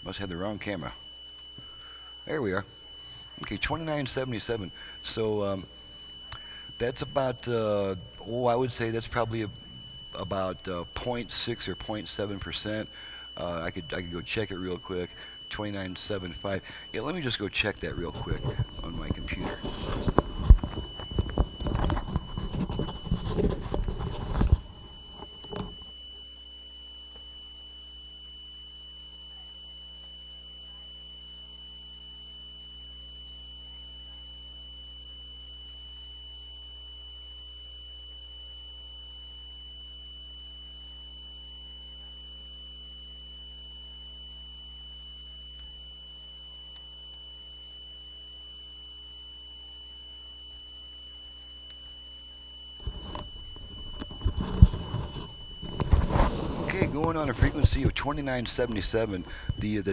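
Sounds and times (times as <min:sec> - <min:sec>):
steady test tone: 0:00.0 - 0:31.2, 0:51.2 - 0:59.9
low mains hum: 0:00.0 - 0:59.9.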